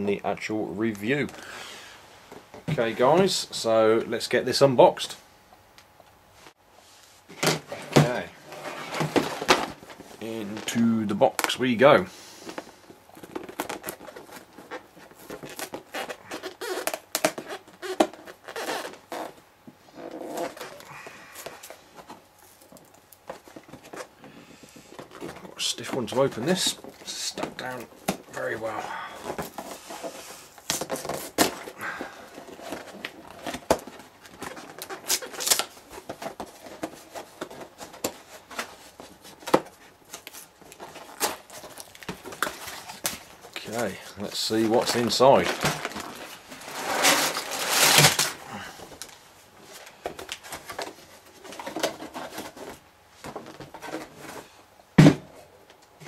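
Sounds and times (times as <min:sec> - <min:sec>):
cardboard scraping and tearing: 0:07.4 - 0:10.9, 0:13.2 - 0:24.1, 0:25.0 - 0:48.8.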